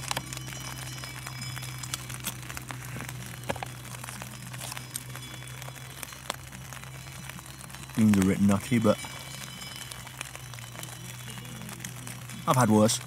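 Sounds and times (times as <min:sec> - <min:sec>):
foil pouch crinkling: 0:00.0 - 0:13.0
steady low hum: 0:00.0 - 0:13.0
spoon scraping inside foil pouch: 0:01.8 - 0:05.4.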